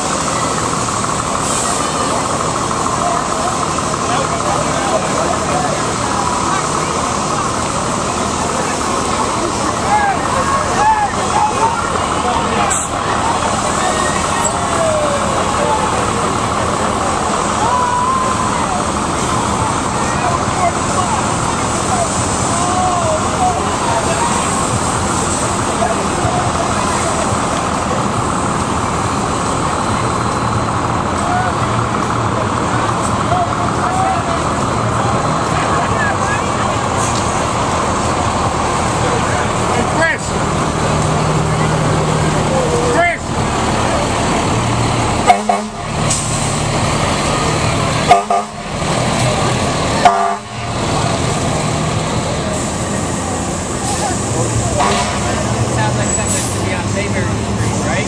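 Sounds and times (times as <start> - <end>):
fire engine pump droning: 0.0 - 58.0
fire truck horn blasts: 45.2 - 46.2, 48.0 - 48.8, 50.0 - 50.7, 54.8 - 55.5.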